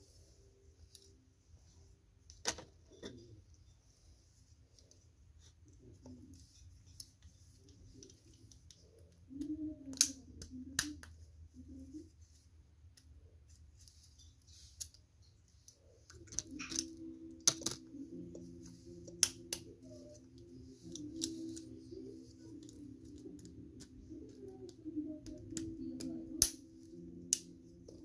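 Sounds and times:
low steady hum: 0.0s - 28.0s
plastic clicks and snaps: 8.0s - 11.1s, 22.6s - 26.6s.

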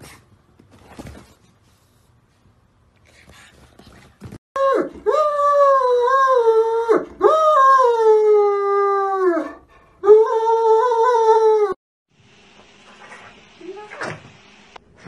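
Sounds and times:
dog howling: 4.6s - 11.8s.

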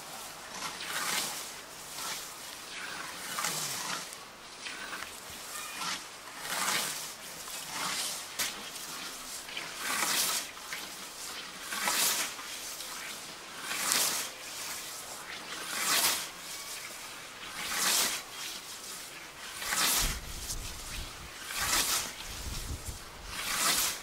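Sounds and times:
scythe swishing through grass: 0.0s - 24.0s.

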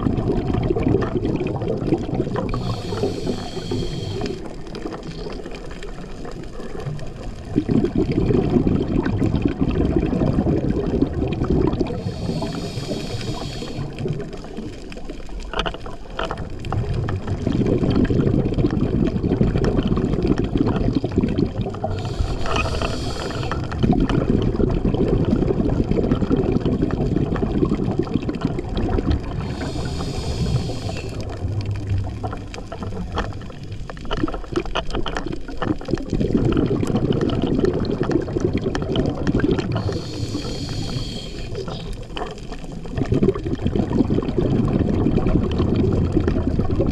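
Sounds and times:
exhaled bubbles underwater: 0.0s - 46.9s
regulator hissing inhales: 2.5s - 4.6s, 11.9s - 14.0s, 21.9s - 23.7s, 29.4s - 31.3s, 39.8s - 42.0s.

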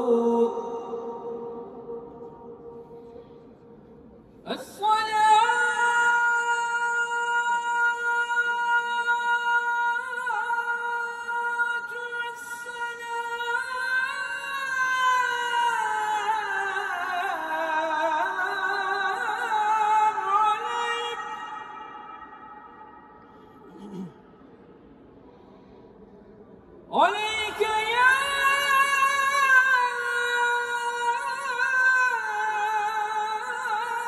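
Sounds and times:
man chanting unaccompanied: 26.9s - 34.0s.

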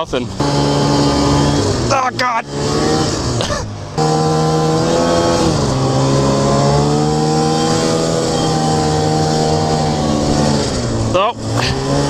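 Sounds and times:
snowmobile engine running: 0.0s - 12.0s.

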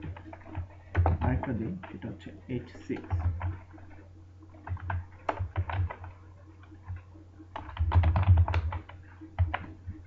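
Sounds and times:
computer keyboard typing: 0.0s - 10.0s.

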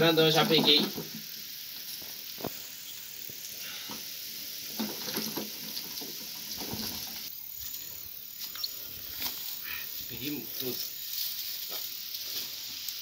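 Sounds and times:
steady high hiss: 0.0s - 13.0s
hand rustling in dry grass: 7.6s - 13.0s.

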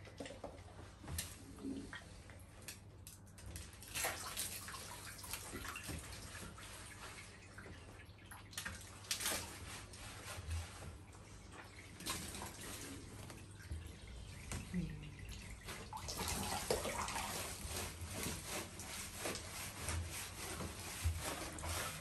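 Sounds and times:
water splashing and dripping: 0.0s - 22.0s
water pouring from a jug: 11.3s - 18.6s.

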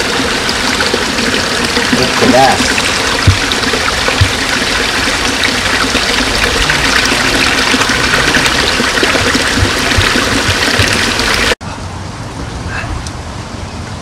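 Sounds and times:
waterfall splashing into pond: 0.0s - 11.6s
low thumps: 2.8s - 11.6s.

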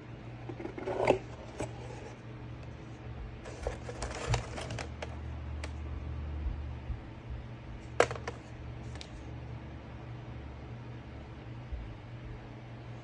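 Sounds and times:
box lid opening: 0.4s - 2.1s
paper and card rustling: 3.4s - 5.1s.

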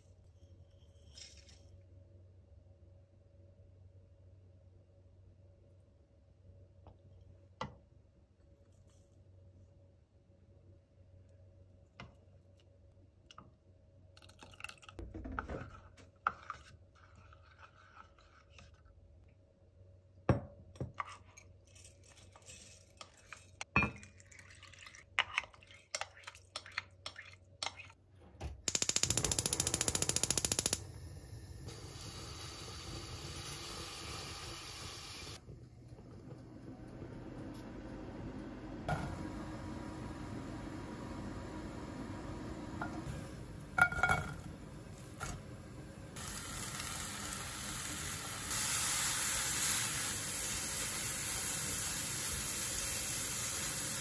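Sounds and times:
gas burner hissing: 28.7s - 35.4s, 36.4s - 54.0s
clinks of bowls and pot: 43.8s - 44.5s.

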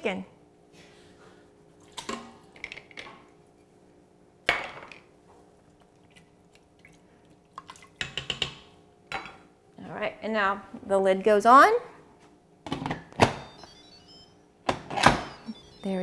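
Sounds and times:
soft wet food sounds: 5.2s - 8.1s.

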